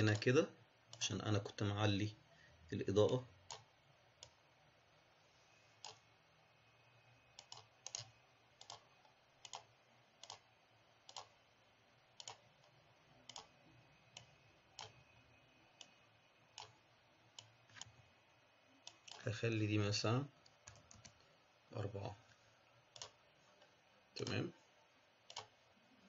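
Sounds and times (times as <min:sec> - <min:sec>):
faint low hum: 0:00.0 - 0:26.0
computer mouse clicking: 0:03.1 - 0:04.4, 0:05.8 - 0:06.1, 0:07.3 - 0:11.4, 0:12.2 - 0:18.0, 0:18.8 - 0:19.3, 0:20.4 - 0:22.2, 0:22.9 - 0:24.4, 0:25.2 - 0:25.6.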